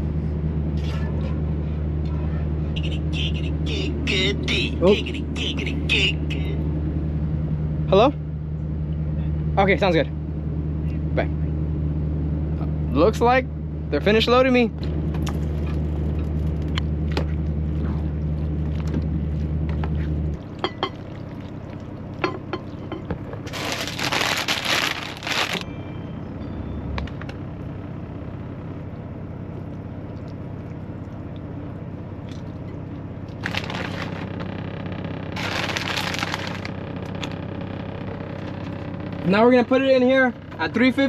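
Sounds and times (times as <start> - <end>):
low hum: 0.0 - 41.0
plastic bag crinkling: 23.5 - 25.6, 33.4 - 34.4, 35.4 - 36.8.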